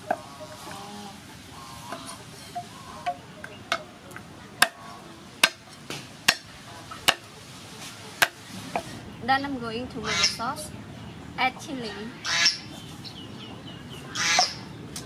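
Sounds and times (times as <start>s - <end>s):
cleaver chopping on wooden block: 4.6s - 4.8s, 5.4s - 7.3s, 8.2s - 8.9s.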